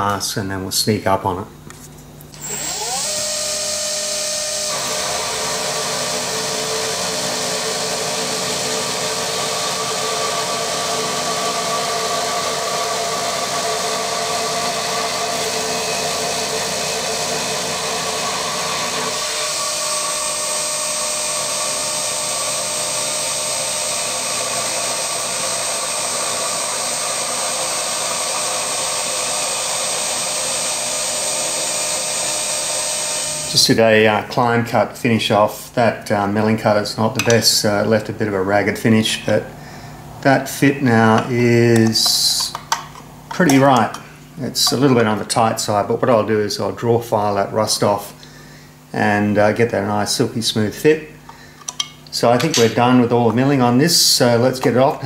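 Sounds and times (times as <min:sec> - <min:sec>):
milling machine whine: 0:02.3 - 0:34.0
end mill cutting aluminium: 0:02.4 - 0:33.8, 0:51.6 - 0:52.8.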